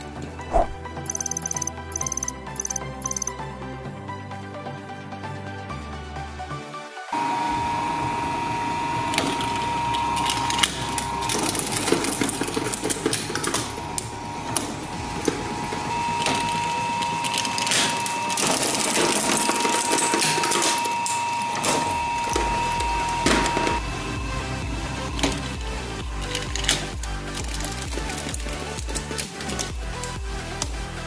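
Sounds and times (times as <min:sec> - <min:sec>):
shredder motor whine: 0:07.2 - 0:29.6
plastic cracking and snapping: 0:26.2 - 0:30.8.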